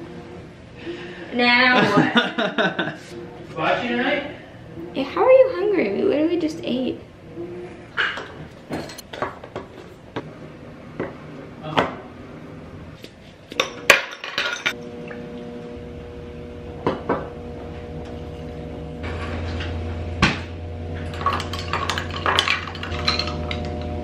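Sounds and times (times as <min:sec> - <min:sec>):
low hum: 0:14.7 - 0:24.0
stirrer clinking against glass: 0:21.1 - 0:23.8.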